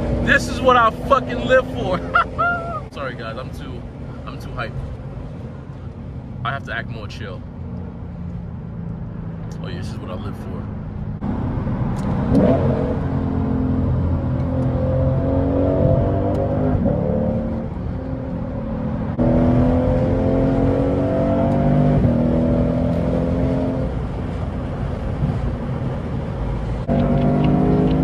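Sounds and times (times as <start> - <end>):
car engine accelerating hard: 11.2 - 28.0.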